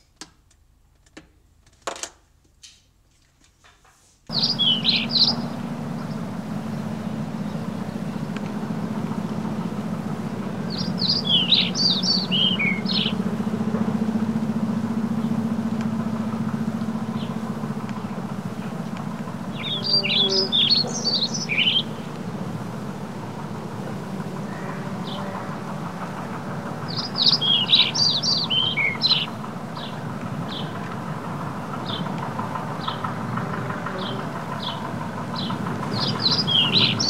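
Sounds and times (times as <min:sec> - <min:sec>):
low hum: 0:04.3 - 0:37.0
songbirds chirping: 0:04.3 - 0:37.0.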